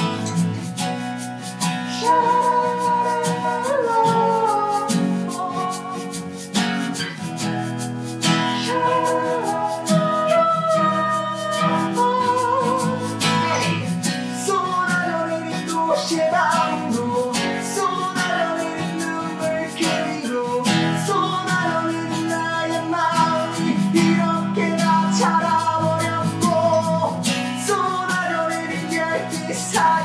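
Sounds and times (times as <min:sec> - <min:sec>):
acoustic guitars strumming: 0:00.0 - 0:30.0
hand shaker: 0:00.0 - 0:30.0
man singing: 0:01.6 - 0:07.1, 0:07.7 - 0:30.0.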